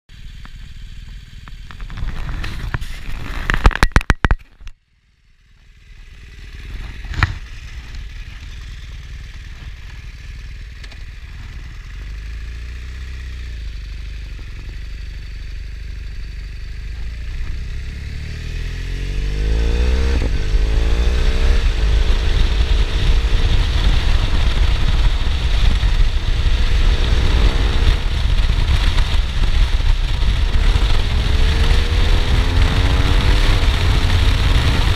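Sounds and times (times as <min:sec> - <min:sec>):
motorcycle engine: 0:00.1 - 0:34.9.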